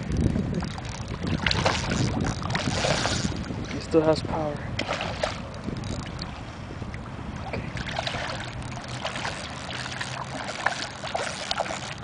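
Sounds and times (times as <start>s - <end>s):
steady low rumble: 0.0s - 12.0s
fish splashing at water surface: 0.8s - 3.4s, 4.8s - 6.2s, 7.4s - 12.0s.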